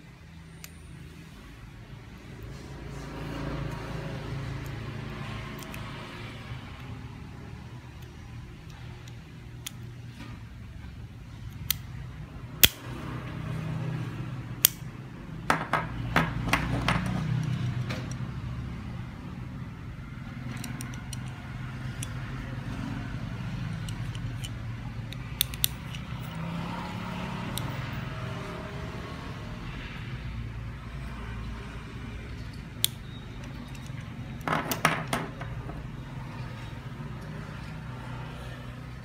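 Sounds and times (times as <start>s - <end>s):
carabiners clicking and clinking: 15.5s - 18.3s, 20.4s - 22.3s, 23.7s - 26.4s, 32.3s - 36.0s.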